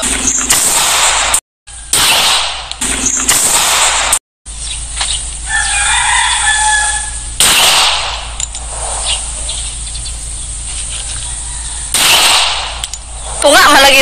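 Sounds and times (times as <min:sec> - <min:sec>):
pistol shot: 0:00.5 - 0:04.2, 0:07.4 - 0:08.4, 0:11.9 - 0:13.0
rooster crowing: 0:05.4 - 0:07.3, 0:11.0 - 0:12.0.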